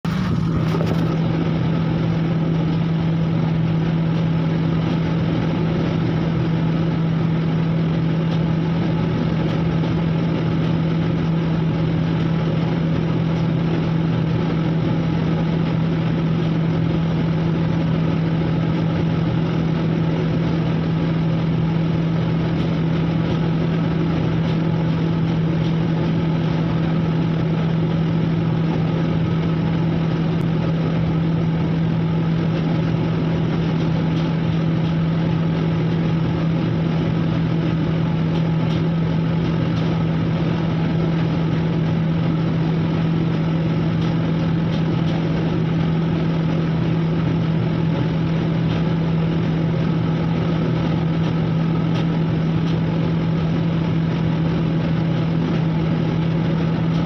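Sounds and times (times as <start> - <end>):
ship engine machinery drone: 0.0 - 57.0.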